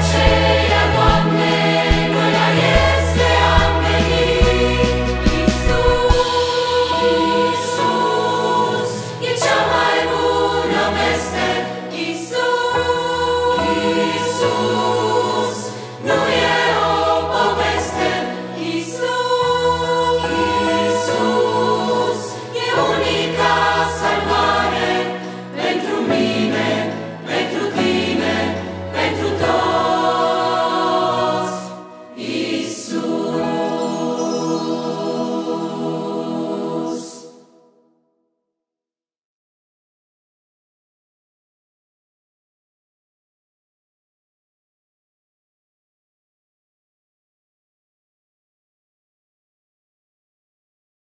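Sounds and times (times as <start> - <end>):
bass guitar: 0.0 - 6.2
percussion hits: 0.0 - 6.9
piano: 0.0 - 37.7
choir singing: 0.0 - 37.8.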